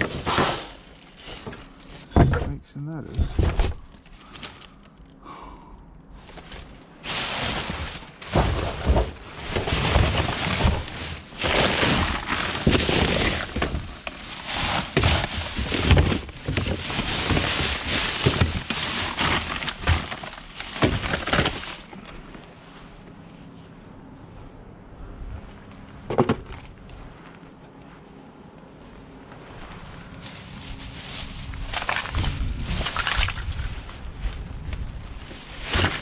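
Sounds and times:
boxes and plastic cases clattering: 0.0 - 4.9, 6.2 - 22.4, 26.1 - 26.8, 30.2 - 33.9, 35.4 - 36.0
plastic bags rustling: 0.0 - 5.2, 6.2 - 23.0, 29.5 - 36.0.

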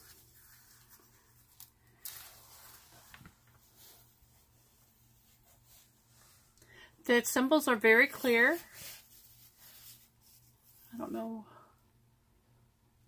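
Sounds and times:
rustling of plastic-covered canvas: 0.0 - 6.4, 8.0 - 11.1.

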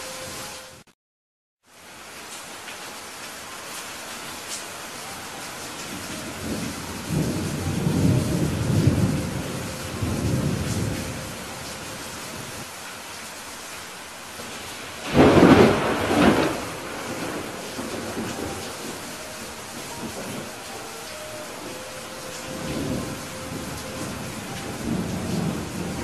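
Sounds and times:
steady rain falling: 1.6 - 26.0
thunder rumbling: 5.9 - 12.7, 14.4 - 26.0
sharp thunderclap: 15.0 - 19.0.

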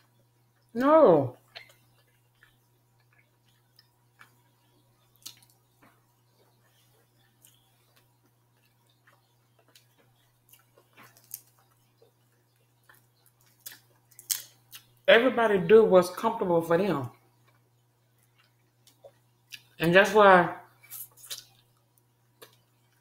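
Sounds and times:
shrimp shells peeling crackles: 7.5 - 15.0.

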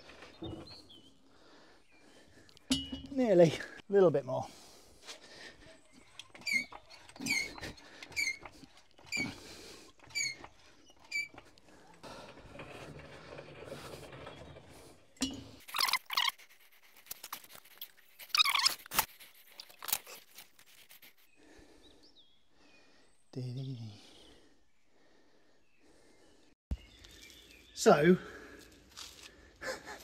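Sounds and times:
hydraulic jack squeaking and knocking: 5.9 - 16.6.

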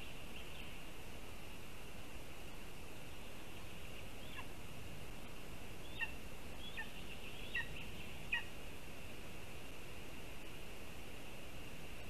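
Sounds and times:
eagle chick calling: 5.8 - 8.5.

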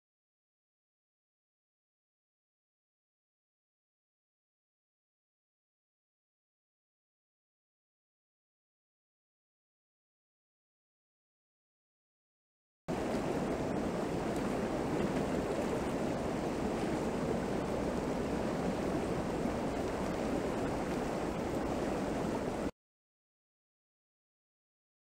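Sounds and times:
river water rushing: 12.9 - 22.7.

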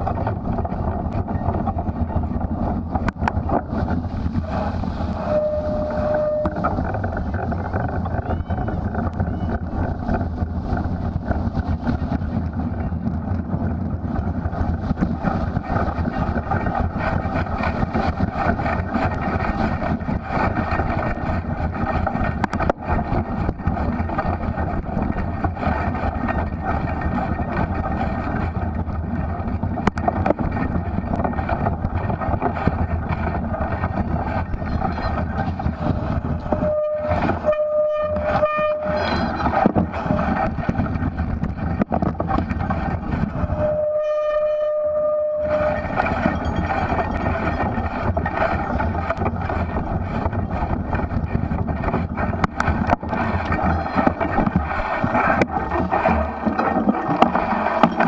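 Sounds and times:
wind and riding noise: 0.0 - 58.0
short pitched tone pulses: 5.2 - 6.8.

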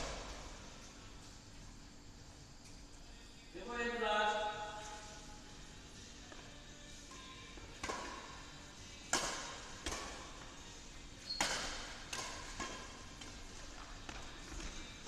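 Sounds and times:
racket striking shuttlecock: 7.8 - 8.4, 9.1 - 10.4, 11.3 - 14.7.

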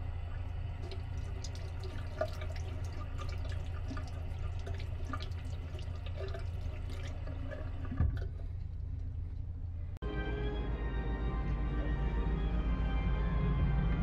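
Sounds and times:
tap water running into basin: 0.0 - 9.1
steady low hum: 0.0 - 14.0.

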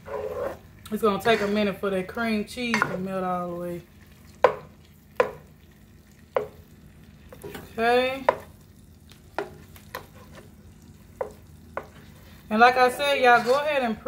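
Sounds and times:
spoon stirring in a pot: 0.0 - 3.2, 3.8 - 14.0
faint butter sizzle: 0.0 - 14.0
spoon knocking against pot: 4.4 - 5.5.

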